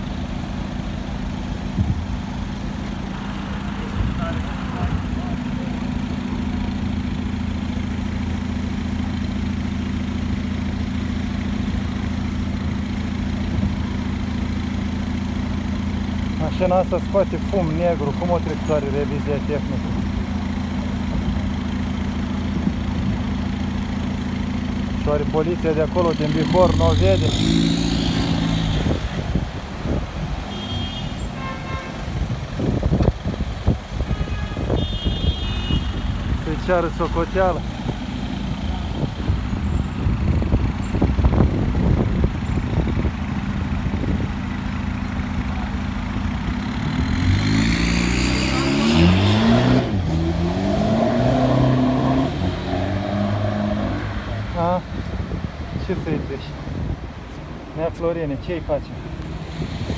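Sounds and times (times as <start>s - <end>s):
car engine idling: 0.0s - 26.9s, 28.8s - 47.2s.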